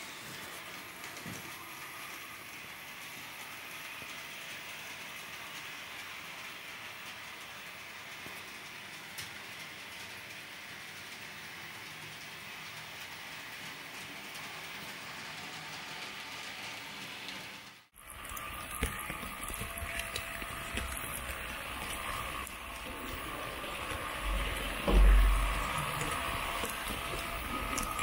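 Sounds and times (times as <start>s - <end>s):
model train rolling hiss: 0.0s - 17.7s
model train rattle and clicks: 0.6s - 17.5s
steady whine: 18.0s - 28.0s
low rumble: 18.9s - 28.0s.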